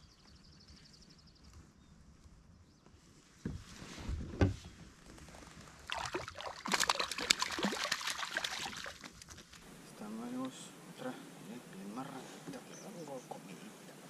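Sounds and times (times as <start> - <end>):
dull thumps on a kayak: 3.4 - 4.7
fish thrashing and splashing: 5.8 - 9.6.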